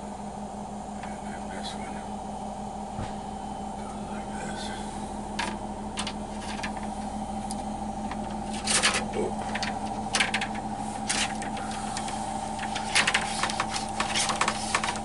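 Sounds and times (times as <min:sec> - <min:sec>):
steady hum: 0:00.0 - 0:15.0
clicks and knocks of shower door parts: 0:05.4 - 0:06.8, 0:08.1 - 0:15.0.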